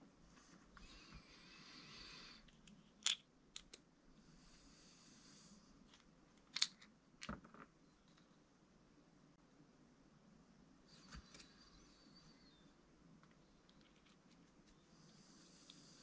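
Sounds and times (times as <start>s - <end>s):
small parts clicking and tapping: 2.4s - 3.8s, 5.9s - 8.3s, 13.2s - 14.8s.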